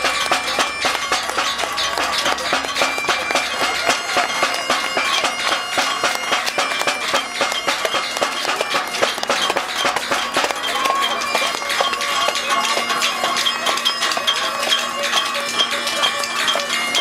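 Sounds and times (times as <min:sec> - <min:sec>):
sharp taps: 0:00.0 - 0:12.9
bagpipes playing: 0:00.0 - 0:17.0.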